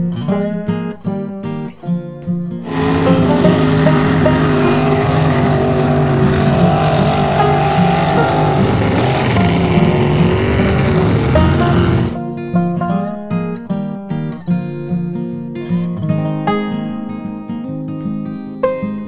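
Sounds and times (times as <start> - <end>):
truck engine revving: 2.6 - 12.2
spraying mud and water: 2.7 - 12.2.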